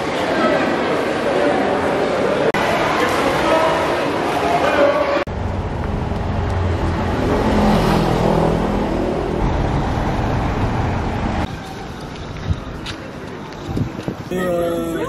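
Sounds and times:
low traffic rumble: 5.3 - 15.0.

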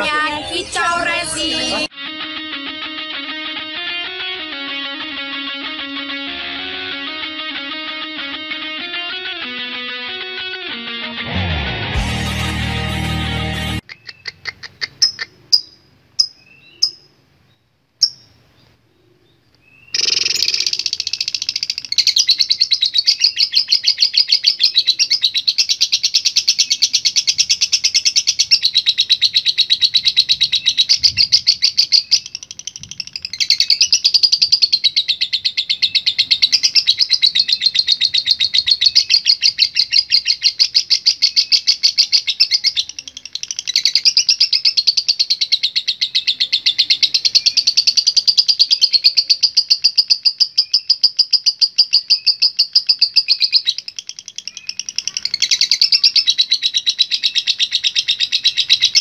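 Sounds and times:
bird chattering with fast chirps: 13.8 - 17.2, 18.0 - 18.4, 19.8 - 59.0.

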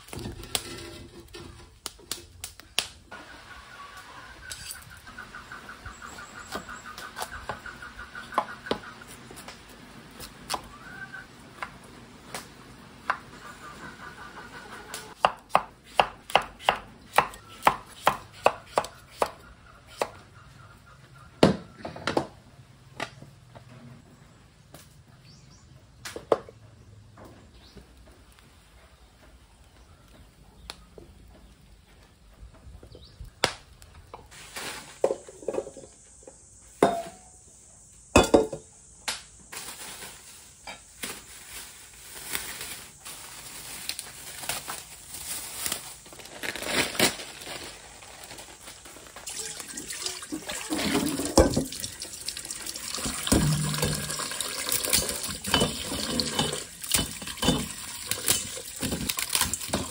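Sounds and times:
plastic wrapping crinkling: 39.5 - 49.3
tap water running into steel bowl: 49.2 - 59.9.

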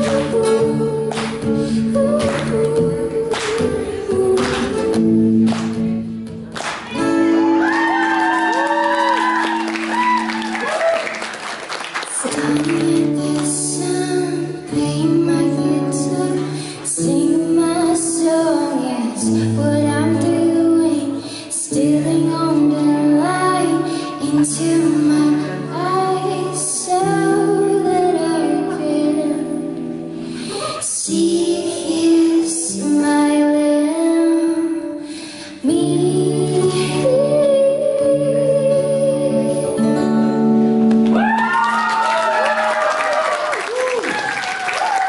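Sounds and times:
woman singing: 0.0 - 6.0, 12.1 - 40.6
acoustic guitar strumming chords: 34.8 - 41.2.

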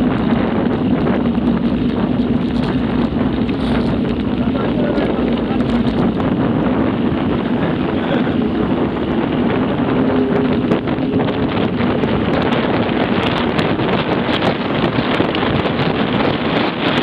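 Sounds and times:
bike clicks and rattles: 0.0 - 7.4
tyre noise on road: 0.0 - 17.0
wind buffeting microphone: 0.0 - 17.0.

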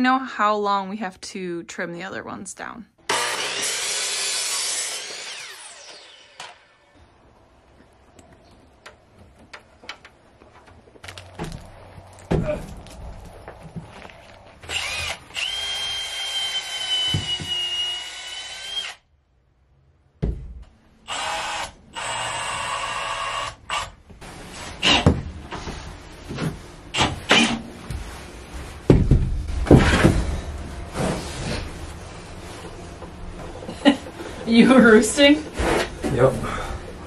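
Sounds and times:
cordless drill whining into wood: 3.1 - 6.9, 14.7 - 19.0, 21.1 - 23.9.

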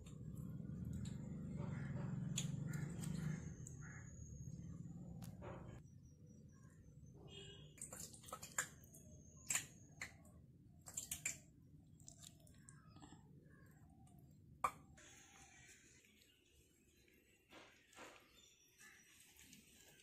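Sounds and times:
low steady hum: 0.0 - 8.0.

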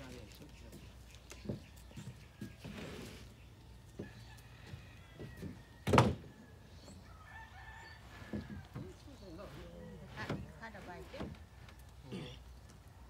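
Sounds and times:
rooster crowing: 4.0 - 8.9.

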